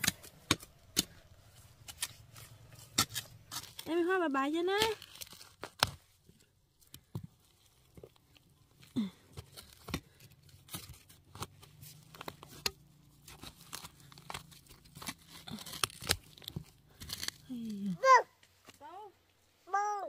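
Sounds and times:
crunching and scraping of soil: 0.0s - 19.9s.

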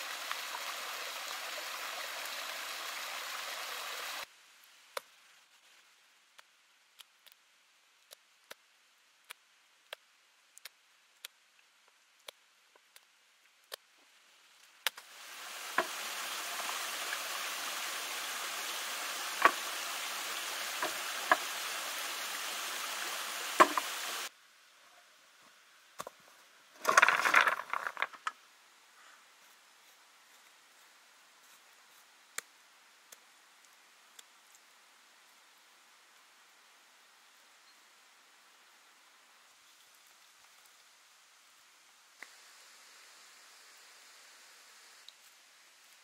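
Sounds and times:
stream rushing water: 0.0s - 4.3s, 15.0s - 24.3s
rustle of dry leaves and stones: 0.0s - 6.6s, 13.4s - 36.2s, 38.7s - 46.0s.

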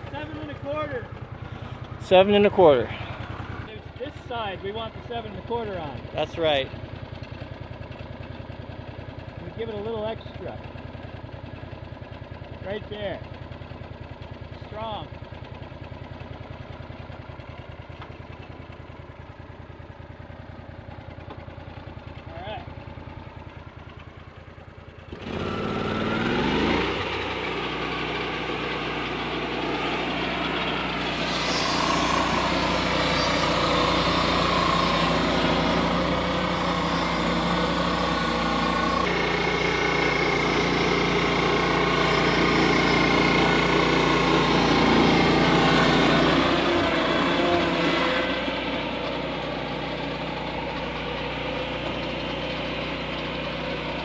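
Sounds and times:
sawmill engine running: 0.0s - 54.0s
circular saw blade cutting log: 25.2s - 54.0s.

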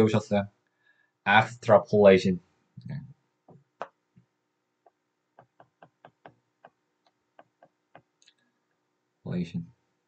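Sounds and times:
stylus tapping tablet screen: 3.5s - 8.2s.

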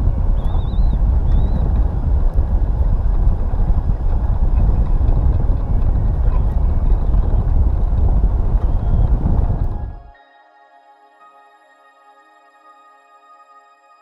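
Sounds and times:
wind buffeting microphone: 0.0s - 10.2s.

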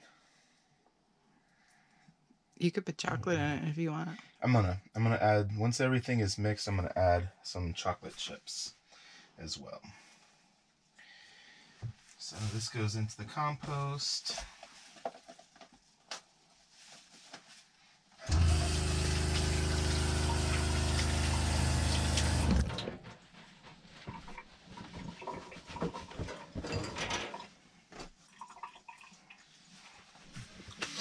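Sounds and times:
water pump humming: 18.2s - 23.2s
faucet running into sink: 18.3s - 22.8s.

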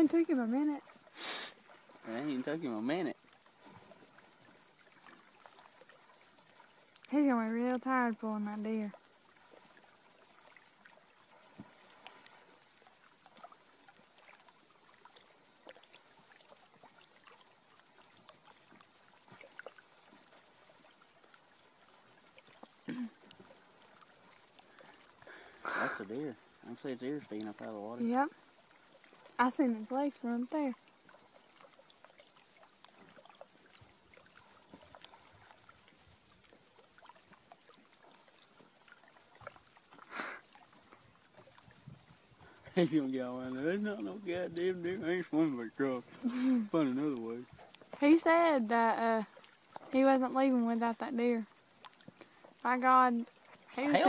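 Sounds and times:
faint ticks: 0.0s - 53.9s
water lapping at rocky shore: 0.0s - 54.0s
soft ticks: 6.2s - 7.2s, 15.1s - 25.2s, 30.4s - 42.3s, 47.1s - 48.1s, 51.2s - 53.6s.

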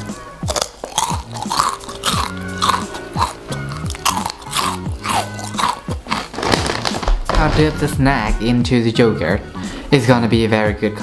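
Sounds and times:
music with steady beat: 0.0s - 11.0s
crunchy chewing: 0.4s - 7.3s.

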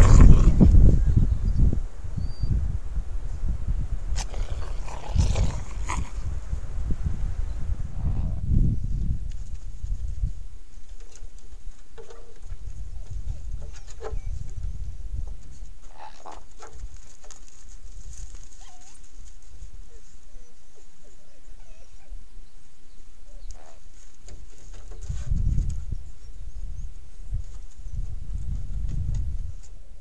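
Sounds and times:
low microphone rumble: 0.0s - 10.4s
wolf pups whining and yelping: 18.5s - 19.1s, 21.4s - 22.2s.

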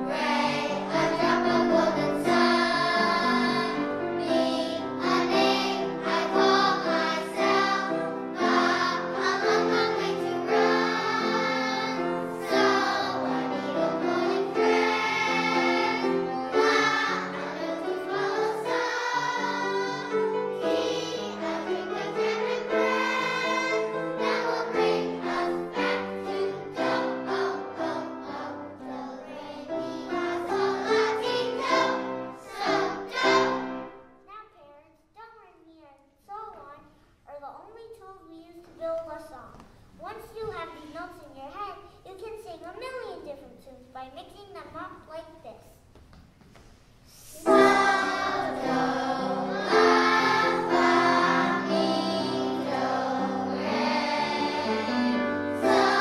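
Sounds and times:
children's choir singing: 0.0s - 34.1s, 47.2s - 56.0s.

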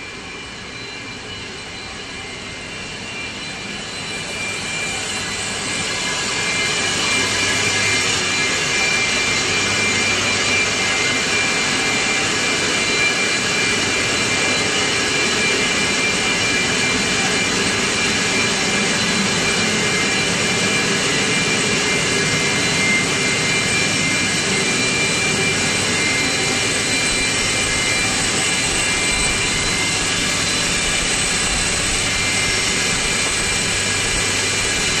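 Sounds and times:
high whining tones: 0.0s - 35.0s
air compressor running: 3.0s - 35.0s.

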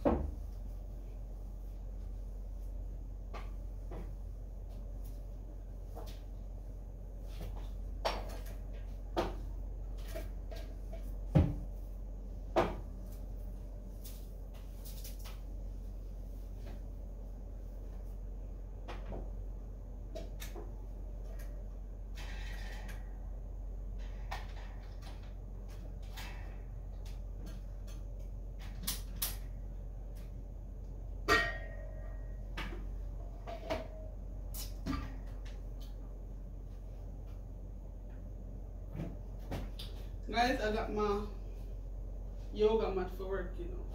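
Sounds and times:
steady low hum: 0.0s - 43.9s
household knocks and thuds: 11.2s - 11.7s.

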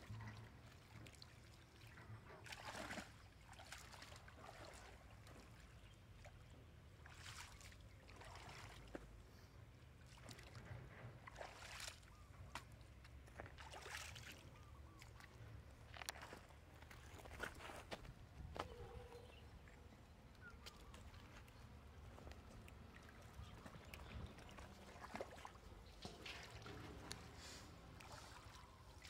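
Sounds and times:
shallow water splashing: 0.1s - 9.1s, 9.9s - 17.9s, 18.8s - 29.0s.

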